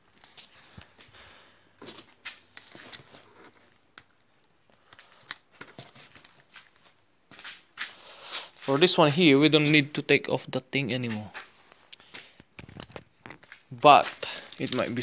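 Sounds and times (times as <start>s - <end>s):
small plastic clicks and rustling: 1.8s - 6.9s, 11.7s - 15.0s.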